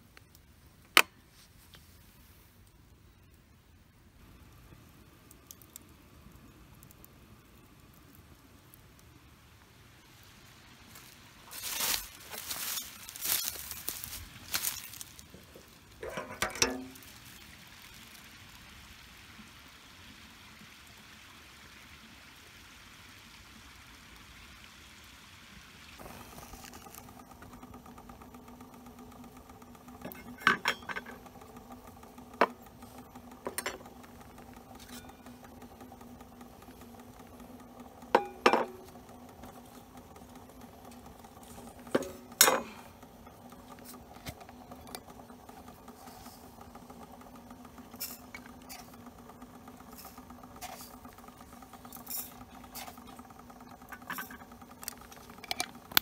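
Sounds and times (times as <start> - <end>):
faint steady hiss: 0.0 - 56.0
metal clank: 16.0 - 17.0, 30.1 - 31.1
metal cups and spoon clinking: 16.0 - 17.0, 30.1 - 31.1.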